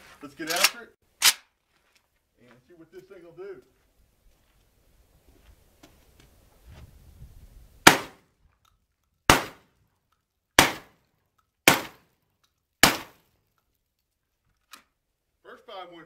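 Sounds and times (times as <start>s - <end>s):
shotgun shots: 7.8s - 8.2s, 9.3s - 9.7s, 10.6s - 11.0s, 11.6s - 12.1s, 12.8s - 13.3s.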